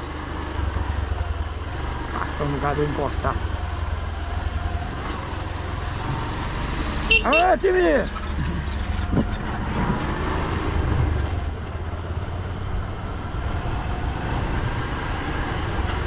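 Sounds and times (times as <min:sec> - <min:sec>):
road noise: 0:00.0 - 0:16.0
rushing wind: 0:08.1 - 0:16.0.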